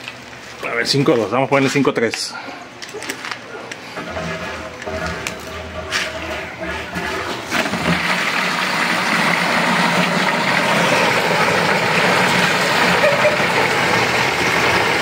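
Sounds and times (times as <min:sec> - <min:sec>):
water gushing into plastic jug: 0:04.0 - 0:15.0.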